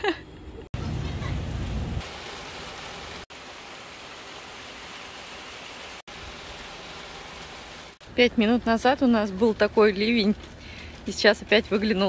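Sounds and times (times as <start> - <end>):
heavy rain falling: 0.8 - 8.0.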